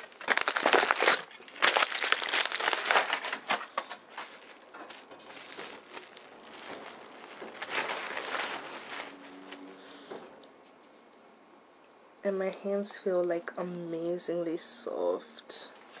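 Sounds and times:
foil and plastic wrap crinkling: 0.0s - 10.1s.

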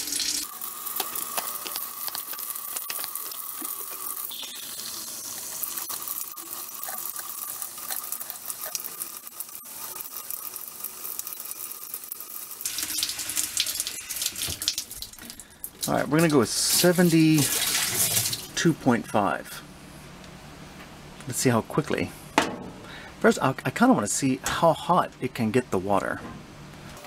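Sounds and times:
faucet running into a mug: 0.0s - 15.1s.

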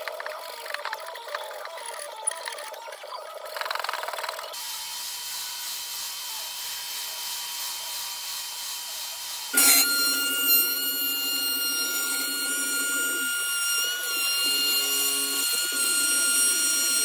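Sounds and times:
whining power tool: 4.5s - 17.0s
belt sander running: 4.6s - 17.0s.

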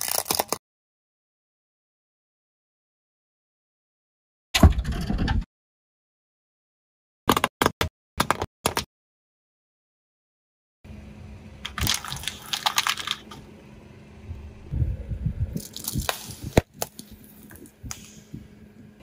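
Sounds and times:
tyre crushing brittle objects: 0.0s - 0.6s, 11.7s - 13.3s, 15.6s - 17.6s
steady low hum: 10.9s - 19.0s.

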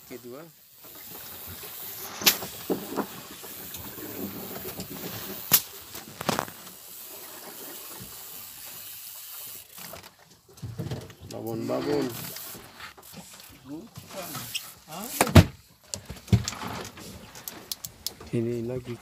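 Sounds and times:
steady hissing: 0.0s - 9.9s.

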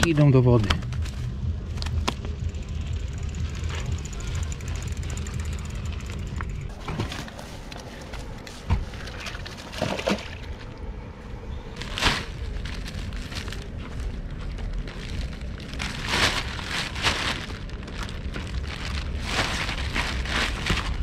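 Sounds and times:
low rumble: 0.0s - 21.0s
plastic bag rustling: 6.7s - 10.7s, 11.6s - 21.0s.

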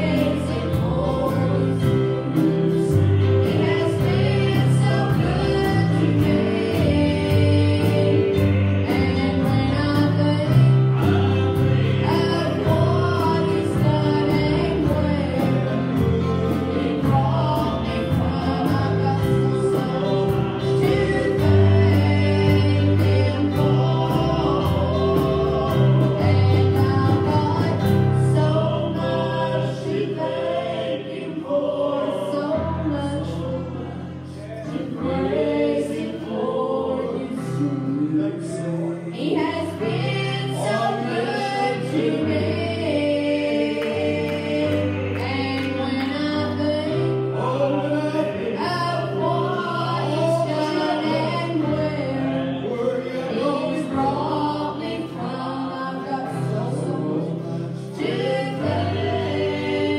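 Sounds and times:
bass and keyboard: 0.0s - 59.9s
group singing gospel song: 0.0s - 59.9s.

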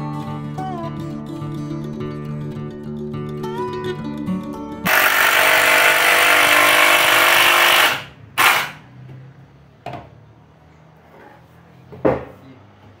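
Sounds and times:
guitar music: 0.0s - 4.9s
drill driving screw into wood: 4.9s - 8.8s.

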